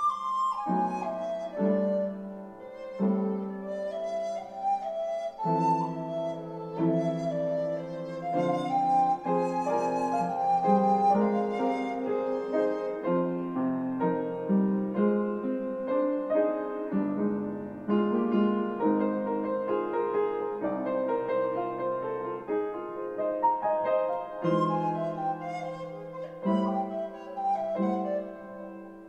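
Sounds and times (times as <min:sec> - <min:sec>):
piano accompaniment: 0:00.0 - 0:29.0.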